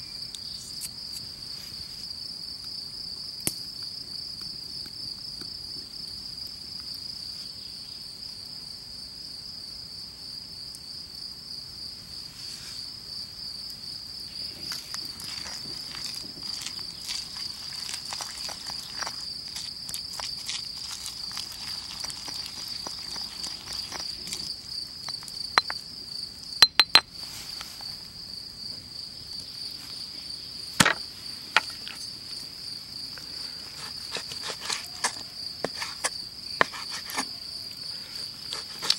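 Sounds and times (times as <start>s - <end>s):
crickets chirring: 0.0s - 38.9s
pestle grinding in stone mortar: 15.2s - 25.8s, 33.6s - 37.4s, 38.2s - 38.9s.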